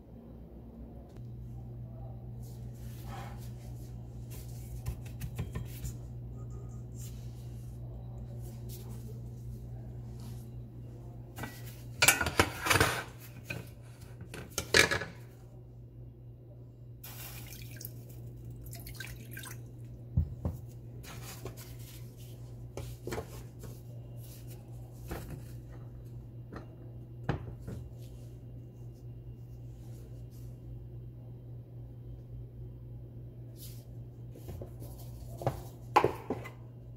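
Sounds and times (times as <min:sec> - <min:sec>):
steady low hum: 0:00.0 - 0:36.9
dishes knocking and clinking: 0:35.9 - 0:36.6.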